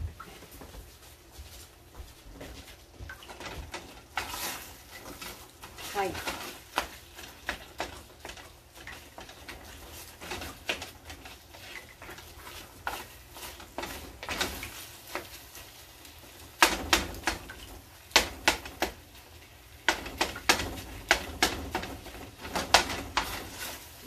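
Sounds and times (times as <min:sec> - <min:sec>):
wooden spoon knocking a pot: 0:16.5 - 0:19.0, 0:19.8 - 0:23.5.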